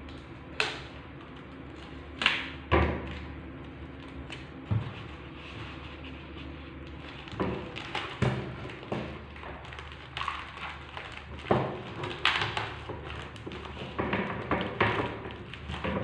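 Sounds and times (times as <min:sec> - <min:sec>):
packing tape rasping: 0:04.0 - 0:16.0.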